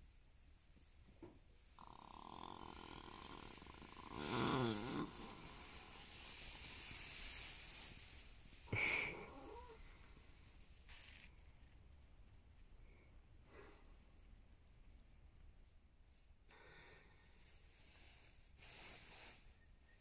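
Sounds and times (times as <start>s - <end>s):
horse breathing through nostrils: 1.8s - 9.9s.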